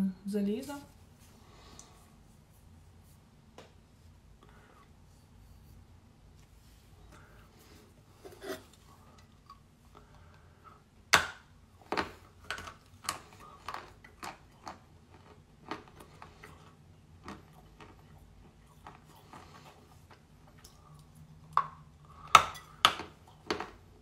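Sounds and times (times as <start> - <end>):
chewing crunches: 11.8 - 24.0.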